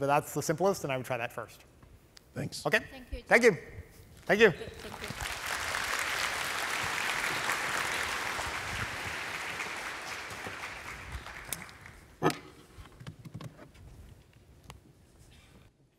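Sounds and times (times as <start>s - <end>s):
audience applause: 4.7s - 12.2s.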